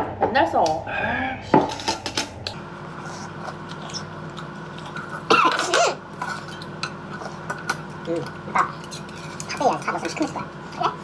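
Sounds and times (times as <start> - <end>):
steady hum: 0.0 - 11.0
person coughing: 5.3 - 6.0
utensils clicking on metal bowl: 6.2 - 10.5.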